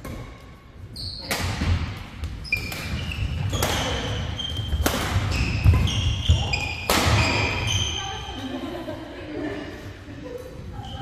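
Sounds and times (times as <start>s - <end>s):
racket hitting shuttlecock: 0.0s - 0.6s, 1.2s - 7.8s
shoes squeaking: 0.8s - 8.4s.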